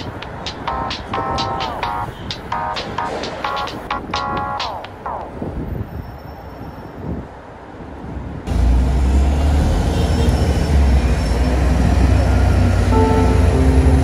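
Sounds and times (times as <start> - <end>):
street traffic noise: 0.0 - 14.0
wind rumble on microphone: 5.3 - 8.5.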